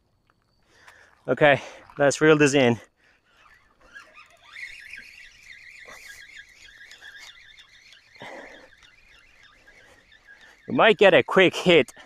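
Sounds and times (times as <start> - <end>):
fishing reel squealing: 1.6 - 12.0.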